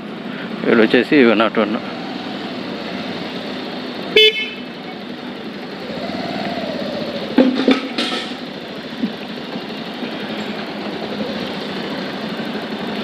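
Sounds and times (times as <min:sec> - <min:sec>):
motorcycle engine running: 0:00.0 - 0:13.0
horn beep: 0:04.1 - 0:04.7.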